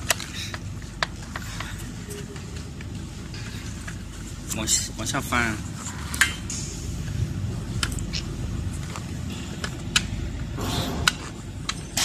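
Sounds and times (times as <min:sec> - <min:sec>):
low steady rumble: 0:06.5 - 0:12.0.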